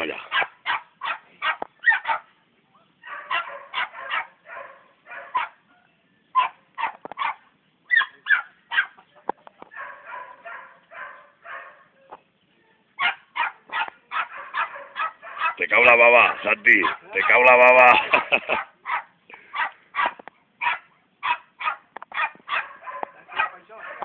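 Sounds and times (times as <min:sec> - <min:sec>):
puppy yelping: 0:00.2 - 0:02.3, 0:03.1 - 0:05.6, 0:06.4 - 0:09.0, 0:13.0 - 0:15.6, 0:16.2 - 0:24.0.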